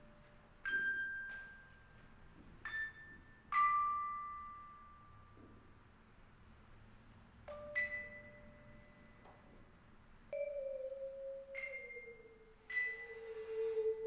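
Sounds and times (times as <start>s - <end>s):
bell-like music notes ringing: 2.6s - 5.4s, 7.5s - 9.3s, 10.3s - 14.0s.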